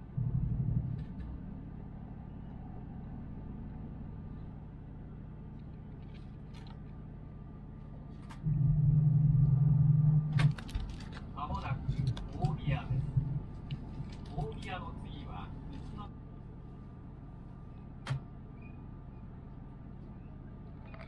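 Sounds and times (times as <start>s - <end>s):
loud low rumble: 0.0s - 5.6s, 8.4s - 16.1s
train cabin rumble and hum: 0.0s - 21.0s.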